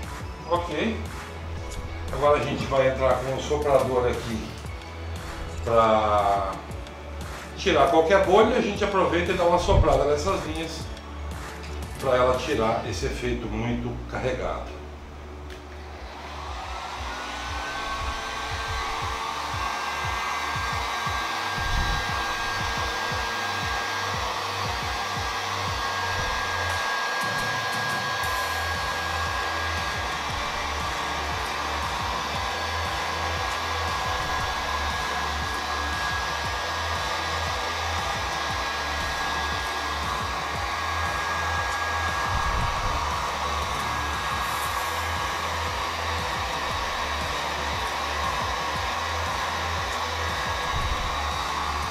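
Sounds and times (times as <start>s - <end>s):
heat gun motor whine: 15.6s - 51.9s.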